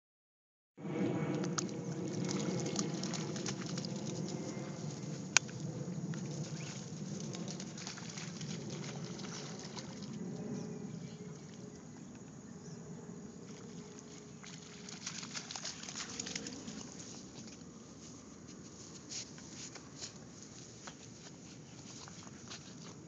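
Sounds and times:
running footsteps through wet grass: 1.8 - 10.3, 13.5 - 23.0.

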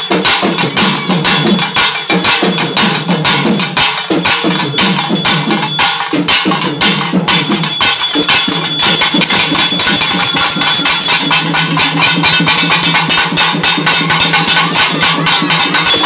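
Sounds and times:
fast barrel drum drumming: 0.0 - 16.0
high ringing tones: 0.0 - 16.0.

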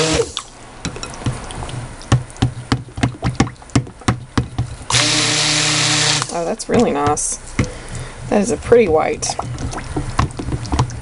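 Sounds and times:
blender motor buzzing: 0.0 - 0.4, 4.9 - 6.3.

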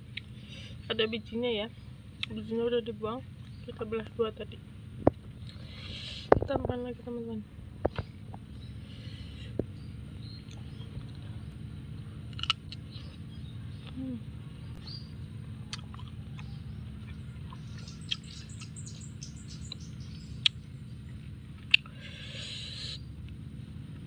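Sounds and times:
low background hum: 0.0 - 24.0
bird chirping: 7.8 - 12.0, 12.7 - 21.3
biting and chewing: 9.5 - 14.0, 15.6 - 18.8, 21.5 - 22.3.

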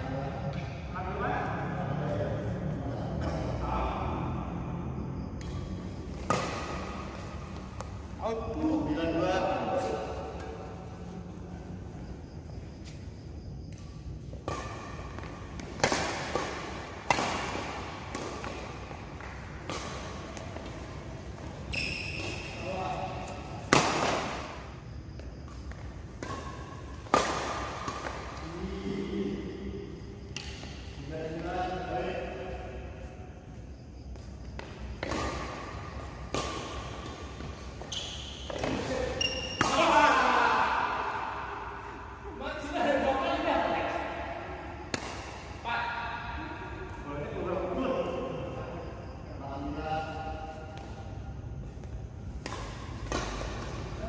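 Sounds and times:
rackets hitting shuttlecock in hall: 0.3 - 48.6, 49.6 - 54.0
shoes squeaking on court floor: 9.8 - 28.5, 33.4 - 40.0.

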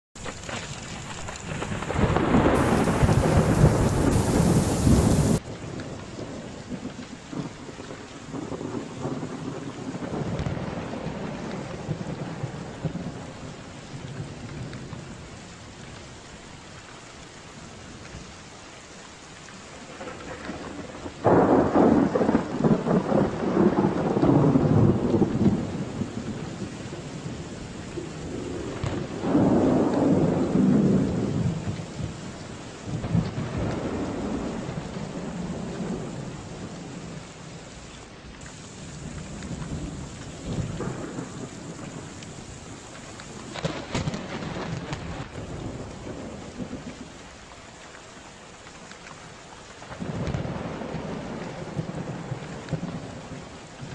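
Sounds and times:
steady rain: 0.2 - 53.9
rolling thunder: 1.1 - 15.2, 19.9 - 37.7, 38.4 - 47.2, 49.9 - 53.9
loud thunderclap: 1.4 - 5.5, 6.2 - 13.4, 19.9 - 26.6, 28.0 - 32.2, 32.8 - 37.2, 38.6 - 47.0, 49.9 - 53.9.

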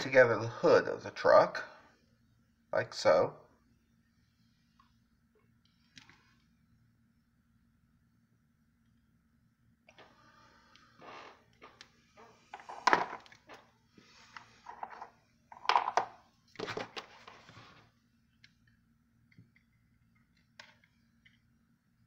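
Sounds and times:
faint steady hum: 0.0 - 22.0
wooden blocks knocking and sliding: 12.5 - 13.6, 14.4 - 17.4.

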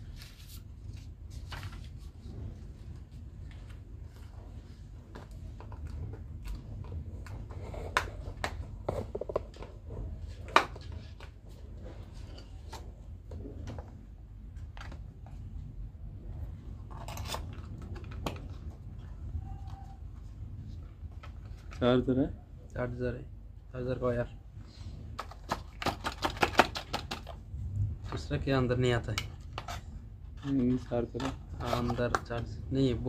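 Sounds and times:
low steady hum: 0.0 - 26.1, 26.7 - 33.0.

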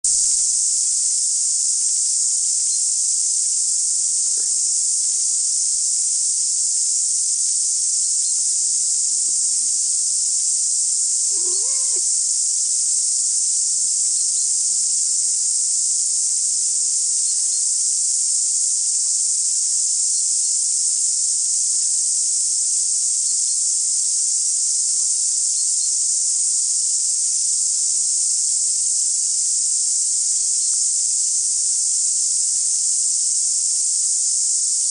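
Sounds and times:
high-pitched hiss: 0.1 - 34.9
faint short pitched call: 11.3 - 12.4.

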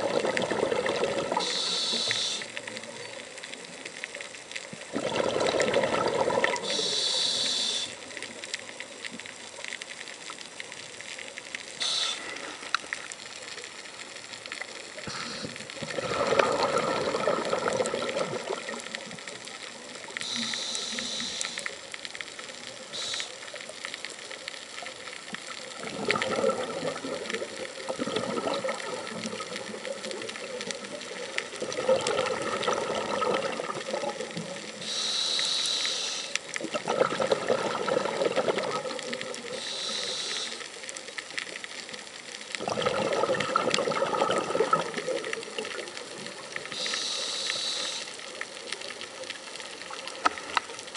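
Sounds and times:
gurgling exhaled bubbles: 0.0 - 2.4, 4.7 - 7.6, 15.0 - 19.3, 25.7 - 34.9, 36.6 - 40.0, 42.5 - 46.9
regulator hissing inhalations: 1.4 - 2.6, 6.6 - 8.0, 11.8 - 12.6, 15.0 - 15.7, 20.2 - 21.8, 22.9 - 23.4, 34.8 - 36.4, 39.5 - 40.8, 46.7 - 48.2.

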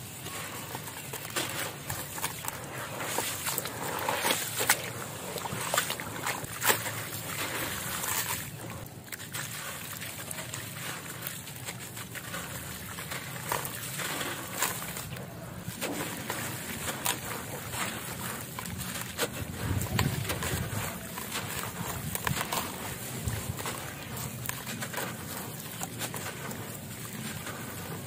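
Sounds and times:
water sloshing and splashing: 0.0 - 28.0
gritty crackle of concrete chunks: 11.6 - 28.0.

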